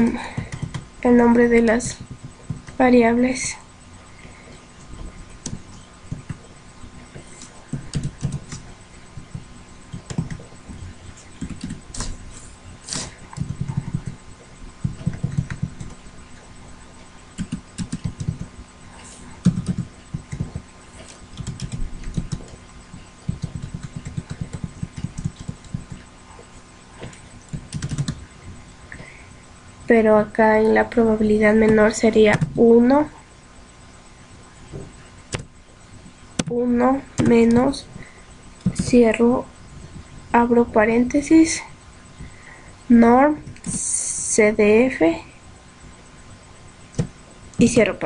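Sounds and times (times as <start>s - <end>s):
keyboard typing: 0.1s - 3.6s, 5.4s - 12.2s, 12.9s - 14.2s, 14.8s - 16.0s, 16.9s - 26.4s, 27.0s - 28.3s, 30.0s - 33.1s, 35.3s - 35.5s, 36.4s - 37.8s, 38.6s - 39.5s.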